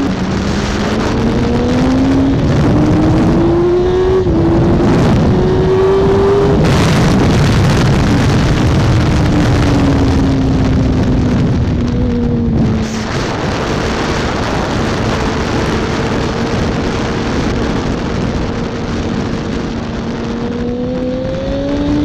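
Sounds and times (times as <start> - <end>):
motorcycle engine revving: 0.0 - 22.0
wind rush on microphone: 0.0 - 22.0.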